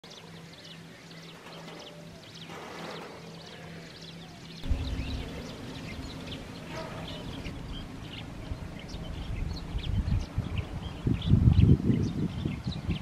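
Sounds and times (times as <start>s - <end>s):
small birds chirping: 0.1s - 13.0s
low gusty rumble: 4.6s - 13.0s.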